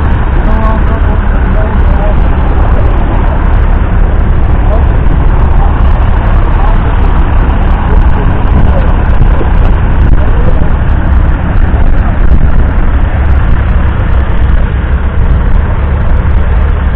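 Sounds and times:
tractor diesel engine running: 0.0 - 16.9.

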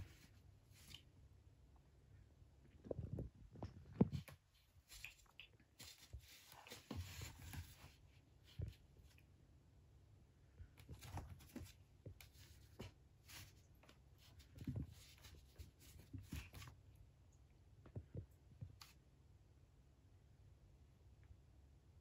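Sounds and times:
cat paws scratching cardboard: 3.9 - 9.2, 10.8 - 16.9.

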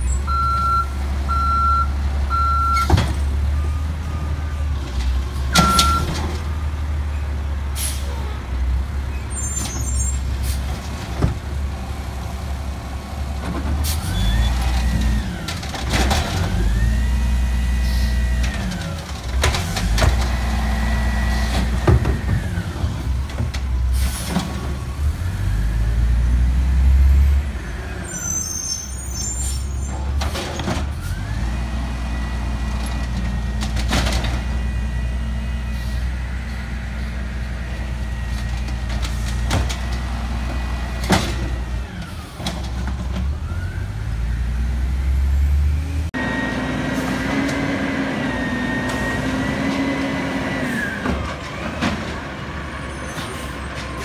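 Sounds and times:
diesel truck engine rumbling and revving: 0.0 - 54.0
reversing beeps: 0.3 - 4.4, 5.5 - 7.2
air brake hisses: 7.8 - 8.3.

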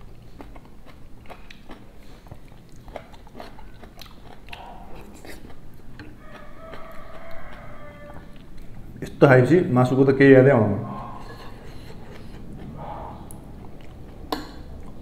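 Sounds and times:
person chewing food: 0.0 - 9.0, 10.9 - 15.0.

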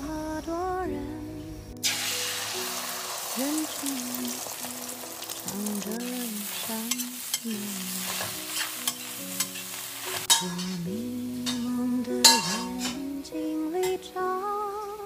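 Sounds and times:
background music: 0.0 - 15.0
food sizzling in a wok: 1.8 - 13.0
metal spatula scraping wok: 6.6 - 13.0
sharp metal clank: 10.2 - 10.8, 11.5 - 13.0.

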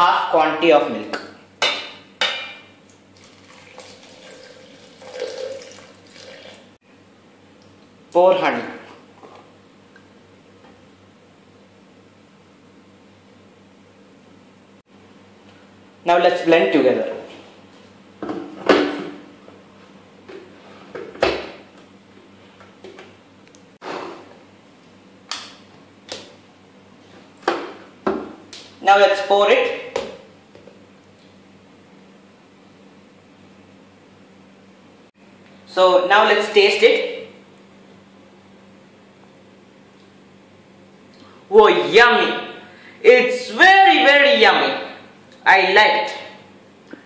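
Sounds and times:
milk pouring into steel jar: 3.2 - 6.6.

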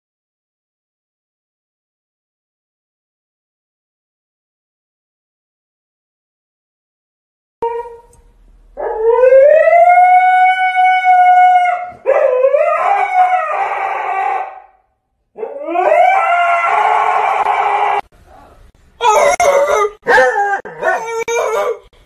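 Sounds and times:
dog howling: 7.6 - 8.1, 8.8 - 14.8, 15.4 - 18.1, 19.0 - 21.9.

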